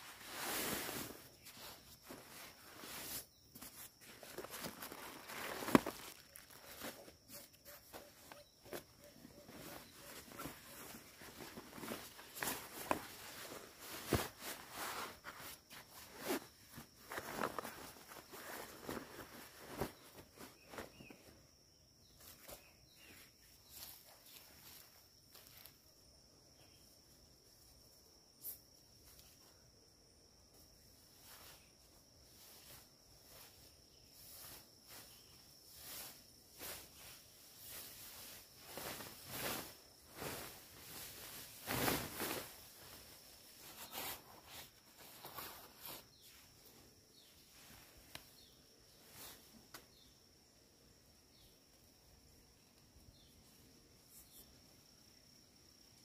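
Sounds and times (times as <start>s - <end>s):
nylon backpack rustling: 0.0s - 21.3s, 36.6s - 46.2s.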